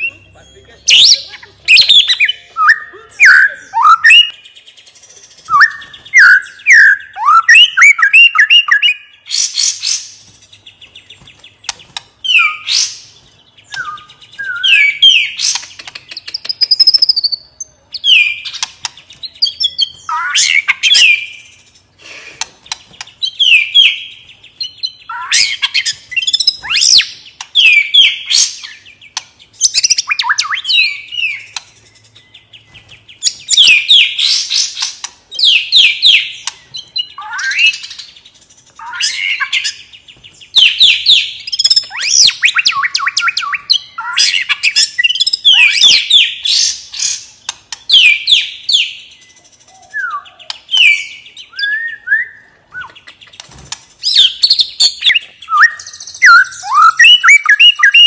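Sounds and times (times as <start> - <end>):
bird singing whistles: 0.0 - 4.5, 5.4 - 10.1, 12.2 - 13.0, 13.6 - 15.6, 16.2 - 17.5, 19.3 - 21.5, 23.2 - 34.8, 38.8 - 47.2, 47.9 - 53.1, 54.0 - 58.0
bird sharp clicks: 11.3 - 12.1, 13.7 - 14.0, 15.0 - 17.2, 18.4 - 19.1, 22.3 - 23.2, 26.8 - 27.6, 28.3 - 30.3, 31.4 - 31.8, 36.4 - 36.7, 47.0 - 48.1, 50.4 - 50.8, 52.8 - 56.4.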